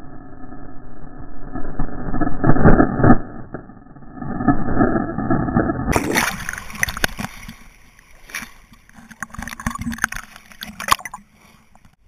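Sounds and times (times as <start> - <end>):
water splashing against camera housing: 5.9 - 12.0.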